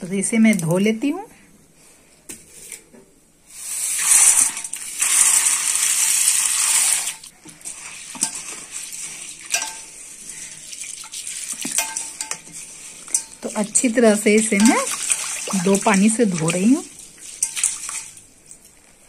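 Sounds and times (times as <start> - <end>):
lentils pouring into water: 3.8 - 11.9
hand swishing lentils in water: 3.8 - 18.6.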